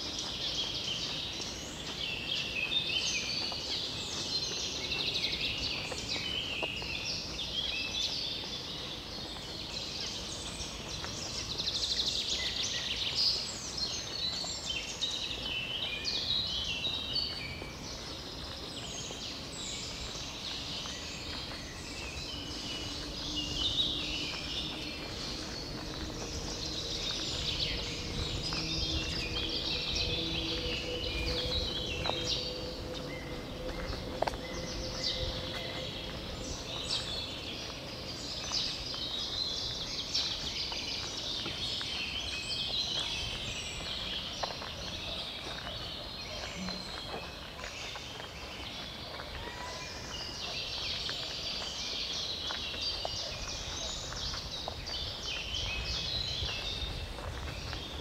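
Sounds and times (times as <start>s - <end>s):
songbirds dawn chorus: 0.0s - 58.0s
steady low rumble: 19.6s - 40.4s.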